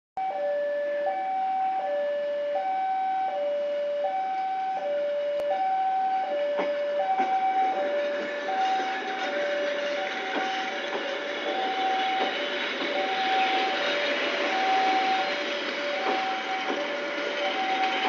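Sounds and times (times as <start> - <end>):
train coaches rolling past: 0.2 - 18.0
two-tone level crossing alarm: 0.2 - 18.0
wheels knocking on rail joints: 6.4 - 18.0.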